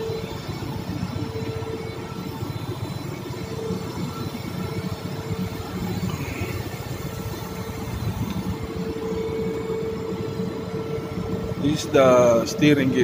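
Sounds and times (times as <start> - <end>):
hydraulic pump motor humming: 0.0 - 13.0.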